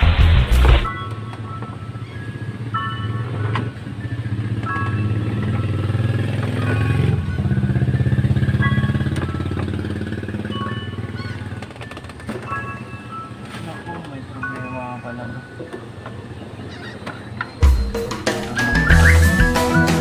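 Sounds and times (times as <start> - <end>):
engine low pulsing drone: 0.0 - 11.8.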